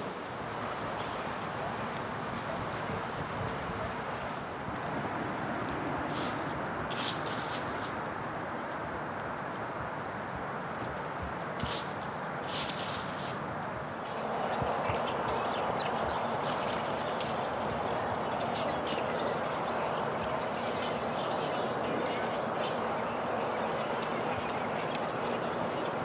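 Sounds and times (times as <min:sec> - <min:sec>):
steady rushing background noise: 0:00.0 - 0:26.0
small birds chirping: 0:00.6 - 0:04.0, 0:12.5 - 0:26.0.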